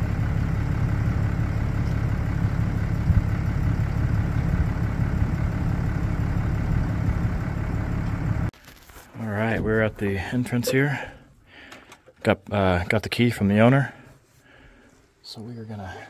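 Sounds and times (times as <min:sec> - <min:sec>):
vehicle engine running low: 0:00.0 - 0:08.5.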